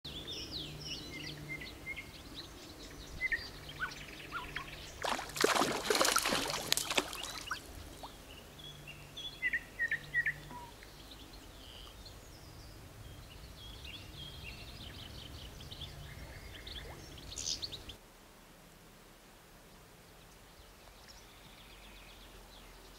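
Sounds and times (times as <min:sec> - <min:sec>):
outdoor background noise: 0:00.0 - 0:22.9
small birds chirping: 0:00.1 - 0:18.0.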